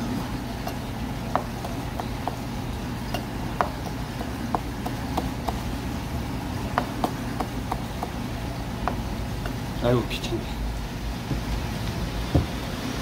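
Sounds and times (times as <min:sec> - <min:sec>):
steady low hum: 0:00.0 - 0:11.5
knife knocking on cutting board: 0:01.3 - 0:02.4, 0:03.2 - 0:05.6, 0:06.8 - 0:08.2, 0:08.8 - 0:09.1.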